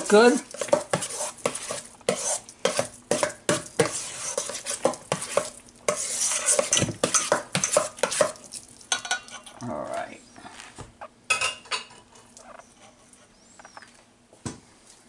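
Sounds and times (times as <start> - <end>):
utensil scraping metal bowl: 0.1 - 8.4.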